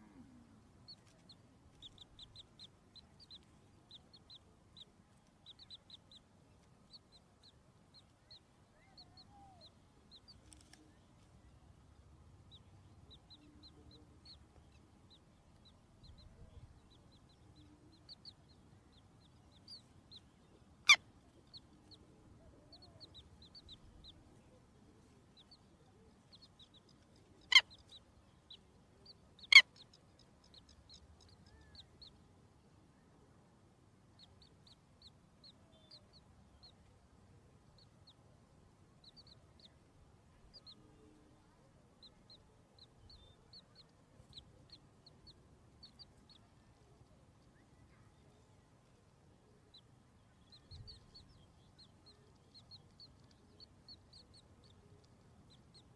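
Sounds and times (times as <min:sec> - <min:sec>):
chicks peeping: 0:00.8 - 0:32.3, 0:39.0 - 0:39.8, 0:40.4 - 0:41.4, 0:42.0 - 0:48.9, 0:49.7 - 0:55.9.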